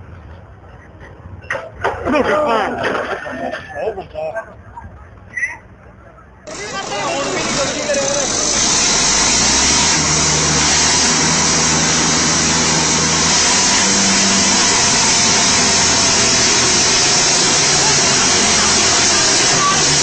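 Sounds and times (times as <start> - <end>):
diesel tractor engines under load: 0.0 - 20.0
crowd noise: 1.7 - 20.0
steady loud hiss: 6.5 - 20.0.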